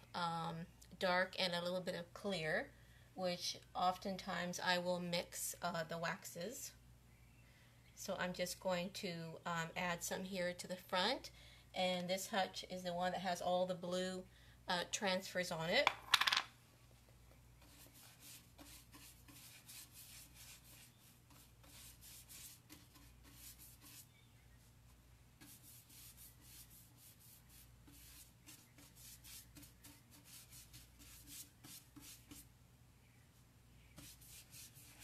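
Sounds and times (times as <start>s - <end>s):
bristle brush scratching on wood: 17.6s - 24.7s, 25.4s - 32.5s, 33.9s - 35.0s.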